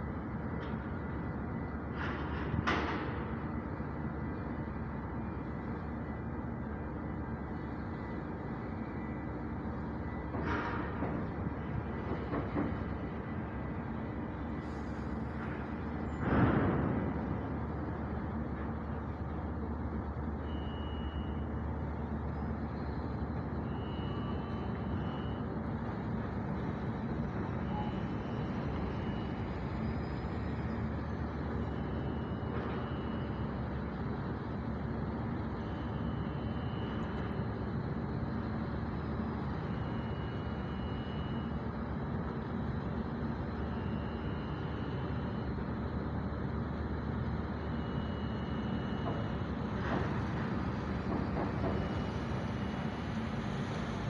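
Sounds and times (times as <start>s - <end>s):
ship engines rumbling: 21.3s - 54.0s.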